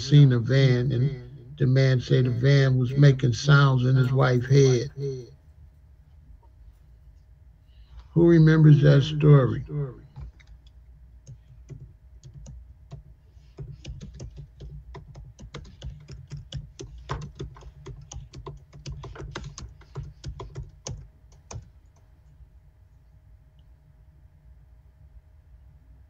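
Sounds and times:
low steady hum: 0.0s - 26.0s
typing on keyboard: 11.2s - 22.1s.

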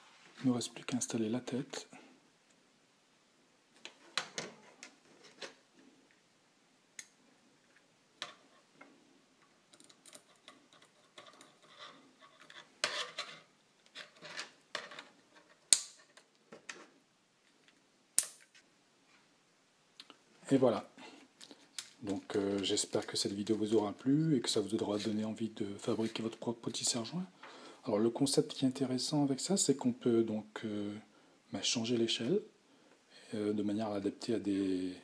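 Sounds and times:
plastic parts clicking and rubbing: 7.7s - 17.8s.

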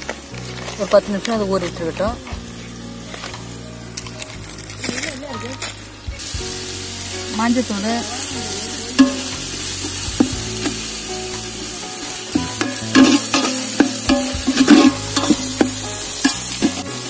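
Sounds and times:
masala sizzling in oil: 0.0s - 17.0s
ladle scraping a steel pot: 12.3s - 16.9s.

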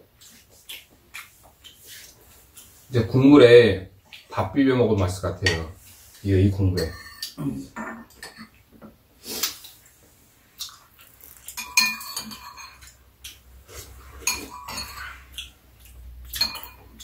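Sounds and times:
spoons clinking on ceramic bowls: 6.7s - 7.4s, 8.0s - 8.5s, 11.6s - 13.0s, 14.2s - 15.2s, 16.3s - 17.0s.

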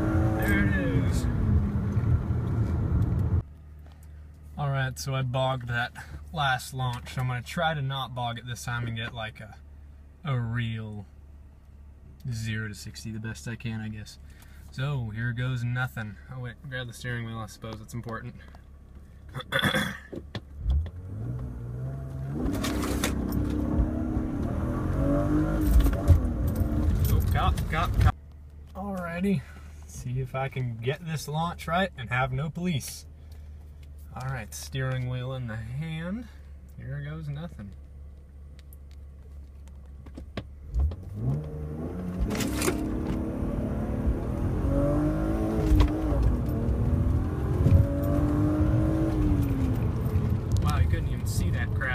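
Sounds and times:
car engine revving and accelerating: 0.0s - 3.4s, 20.7s - 28.1s, 40.7s - 51.9s.

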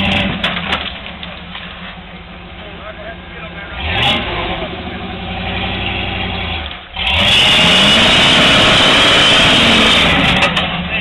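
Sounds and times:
engine revving: 0.0s - 0.7s, 3.1s - 11.0s.

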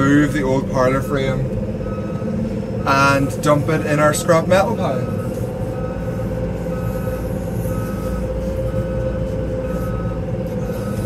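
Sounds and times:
tractor engine running: 0.0s - 11.0s.

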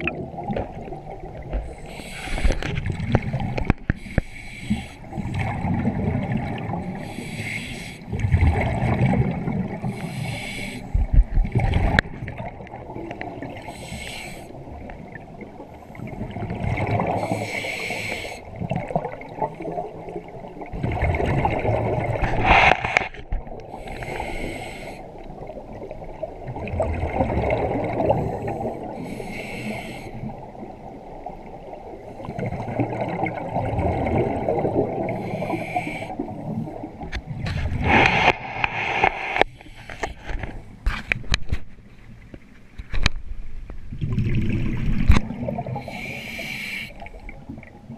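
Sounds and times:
hissing regulator inhalation: 4.0s - 5.1s, 7.0s - 8.0s, 9.9s - 11.0s, 13.6s - 14.5s, 17.2s - 18.4s, 23.8s - 25.1s, 29.0s - 30.2s, 35.1s - 36.2s, 45.8s - 47.1s.

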